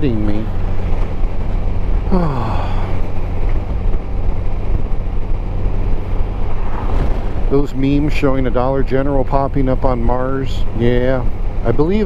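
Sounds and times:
motorcycle engine hum: 0:00.0 - 0:12.0
wind and road noise: 0:00.0 - 0:12.0
man saying oh: 0:02.1 - 0:03.0.

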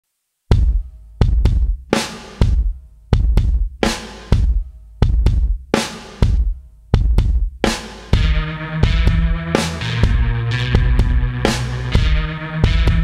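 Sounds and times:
bass drum thumps: 0:00.5 - 0:13.0
background music: 0:07.6 - 0:13.0.

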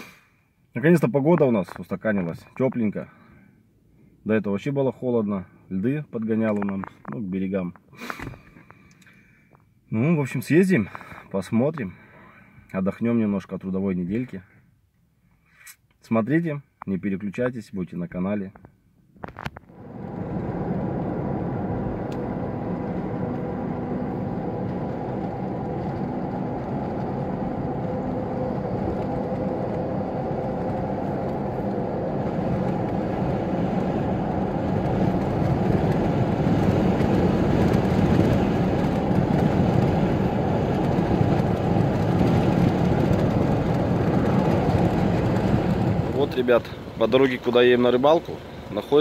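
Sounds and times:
car engine and road noise: 0:18.7 - 0:49.0.

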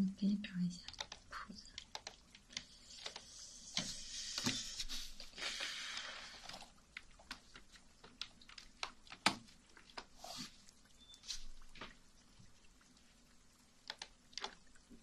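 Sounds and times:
hands rustling: 0:02.6 - 0:12.0.

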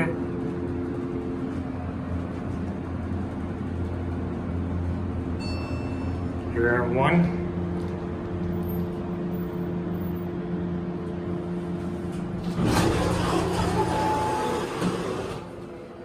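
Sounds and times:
elevator car hum: 0:00.0 - 0:16.0
elevator doors sliding open: 0:11.9 - 0:16.0.

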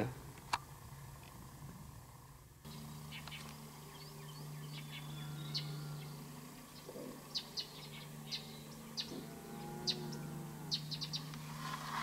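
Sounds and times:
steady low hum: 0:00.0 - 0:12.0
high bird chip notes: 0:02.7 - 0:11.6.

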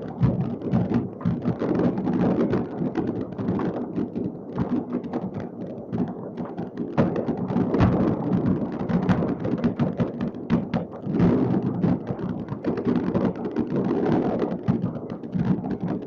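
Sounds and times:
distant fireworks rumble: 0:00.0 - 0:16.0
firework cracks and pops: 0:00.0 - 0:16.0.

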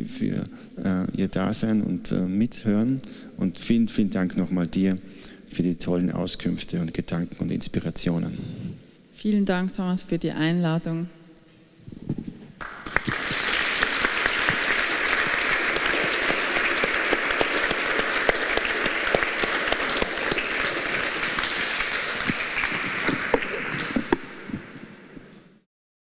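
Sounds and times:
audience applauding: 0:12.6 - 0:25.2.

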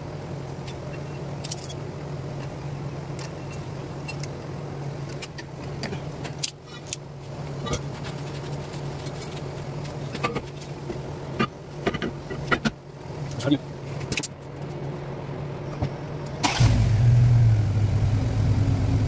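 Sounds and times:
steady low hum: 0:00.0 - 0:19.0
metallic clinks and scrapes: 0:01.0 - 0:01.8, 0:06.3 - 0:07.0.

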